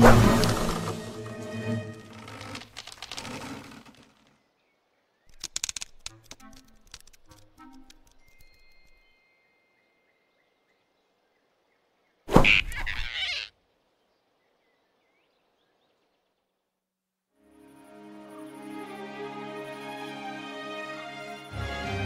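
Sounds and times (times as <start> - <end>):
cartoon thump with whoosh: 12.3 - 13.1.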